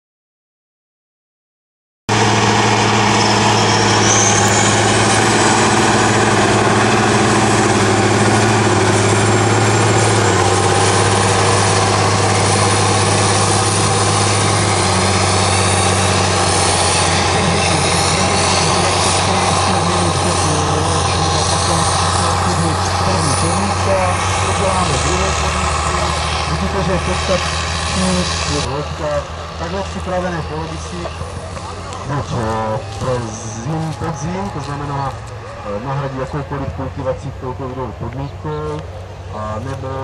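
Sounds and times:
tractor diesel engine under load: 2.1 - 40.0.

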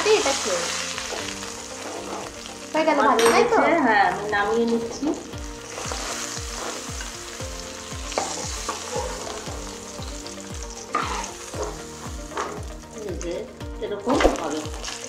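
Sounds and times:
hot oil sizzling in frying pan: 0.0 - 15.0
metal spatula scraping pan: 1.0 - 2.4, 5.7 - 7.2, 8.1 - 9.7, 10.8 - 12.7.

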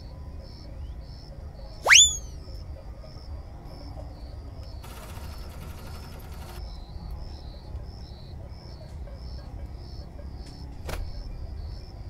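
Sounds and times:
crickets chirping: 0.0 - 12.0
buzzy trill: 1.9 - 2.3.

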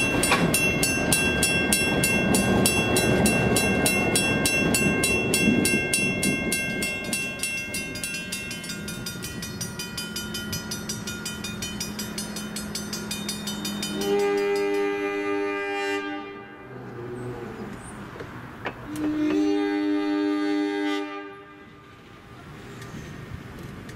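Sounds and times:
railroad crossing bell ringing: 0.0 - 16.7
diesel train rumble: 0.0 - 23.9
locomotive air horn: 13.8 - 16.9, 18.8 - 22.2.

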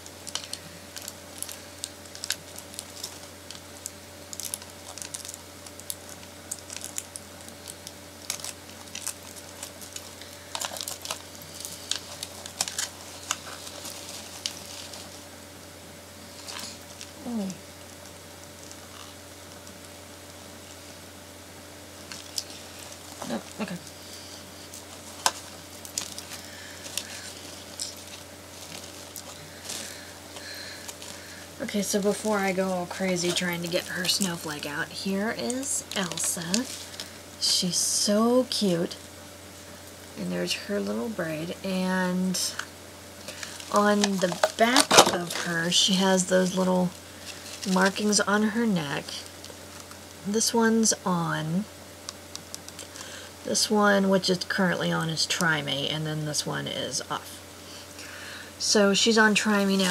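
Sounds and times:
packaging clicks and crinkles: 0.0 - 15.2, 17.8 - 19.9, 22.0 - 24.0, 24.6 - 37.3, 42.5 - 48.2, 52.0 - 53.1
steady low hum: 0.0 - 59.9.

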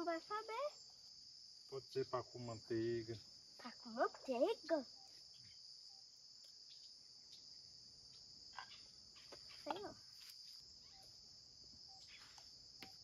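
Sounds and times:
insect chorus drone: 0.0 - 13.0.

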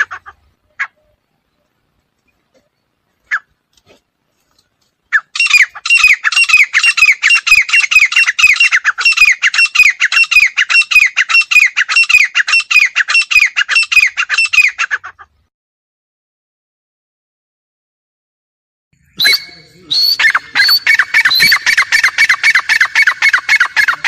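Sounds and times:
francolin calling harsh notes: 19.0 - 24.0.

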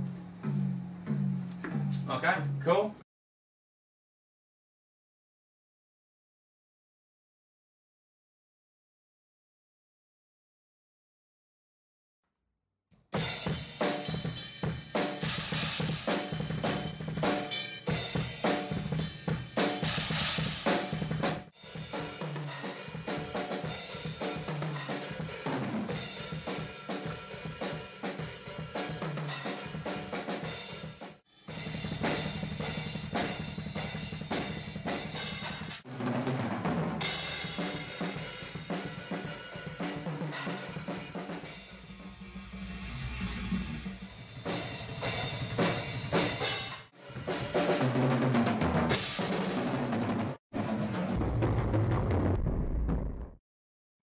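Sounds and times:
heavy metal drumming: 13.2 - 53.3.

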